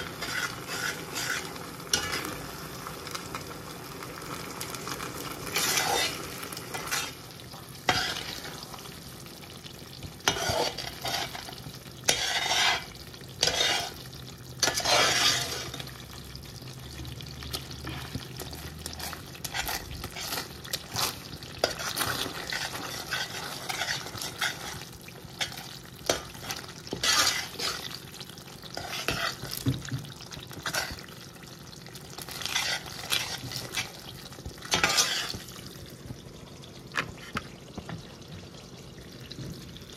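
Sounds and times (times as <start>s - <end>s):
metal spoon scraping pot: 0.0s - 2.4s, 5.6s - 7.2s, 7.9s - 8.5s, 10.2s - 15.9s, 19.0s - 28.0s, 28.7s - 29.5s, 32.3s - 34.0s, 34.7s - 35.4s
mixture bubbling and sizzling: 0.0s - 39.9s.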